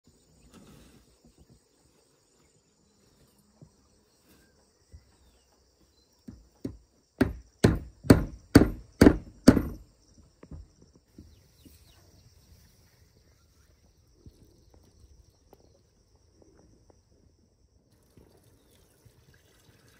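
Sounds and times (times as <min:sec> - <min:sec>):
faint insect chorus: 0:00.0 - 0:19.9
tool striking hard: 0:06.6 - 0:09.8.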